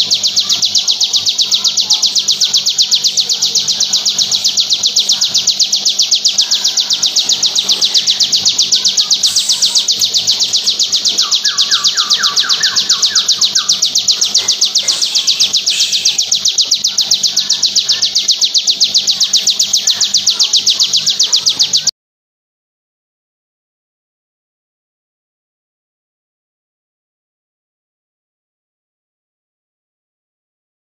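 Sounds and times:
bird song rapid high notes: 0:00.0 - 0:21.9.

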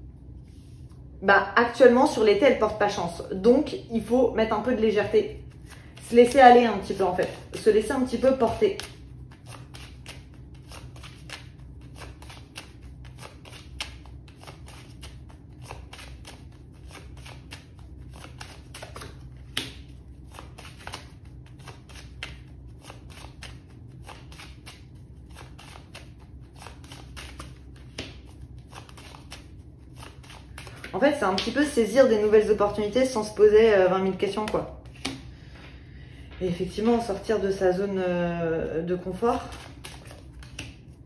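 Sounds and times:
cards shuffling: 0:05.5 - 0:33.4, 0:34.4 - 0:35.2, 0:39.2 - 0:40.9
cards snapping: 0:08.5 - 0:31.5, 0:39.5 - 0:40.8.

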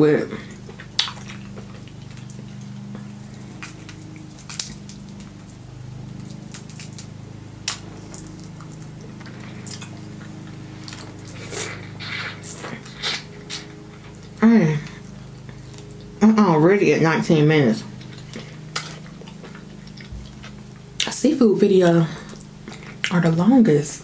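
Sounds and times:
steady low hum: 0:00.0 - 0:24.0
wet mouth eating sounds: 0:00.4 - 0:05.5, 0:07.7 - 0:16.1, 0:17.9 - 0:21.2, 0:22.2 - 0:23.2
crab shells cracking: 0:00.7 - 0:14.3.

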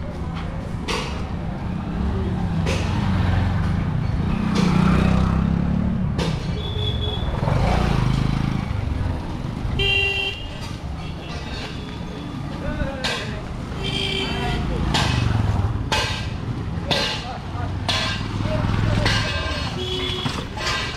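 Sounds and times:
street traffic: 0:00.0 - 0:20.9
motorcycle engine passing: 0:04.4 - 0:06.0
vehicle horn toot: 0:06.6 - 0:07.3, 0:09.8 - 0:11.2, 0:19.7 - 0:20.4.

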